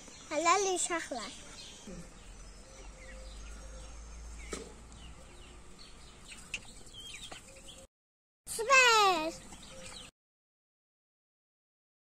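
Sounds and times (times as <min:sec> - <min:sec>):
birds chirping: 0:00.0 - 0:07.9, 0:08.5 - 0:10.1.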